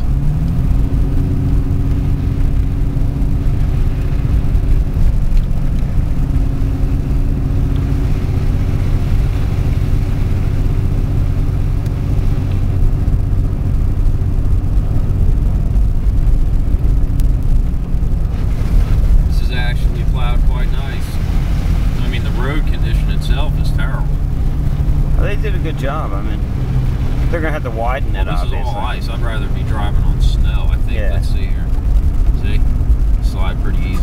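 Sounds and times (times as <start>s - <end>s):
car engine and road noise: 0.0s - 34.0s.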